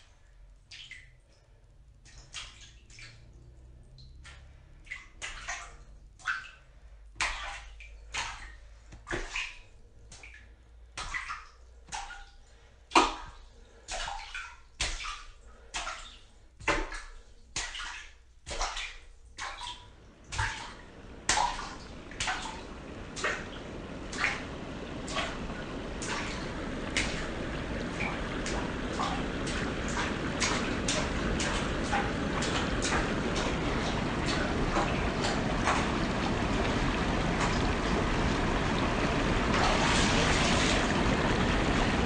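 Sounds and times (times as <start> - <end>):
foot splashing in shallow water: 13.9 - 42.0.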